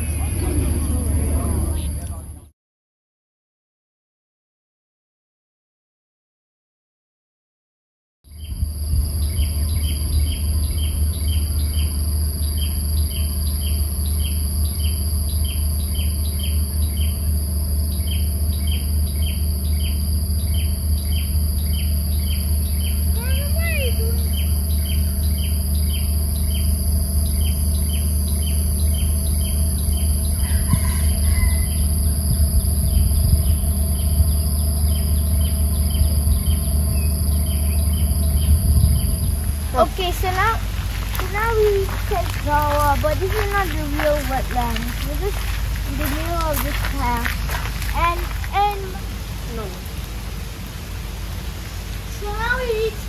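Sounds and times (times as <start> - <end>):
high-pitched drone: 0.0 - 2.4, 8.6 - 49.9
low rumble: 0.0 - 2.5, 8.5 - 53.0
insects chirping: 8.3 - 53.0
bird calls: 17.9 - 49.3.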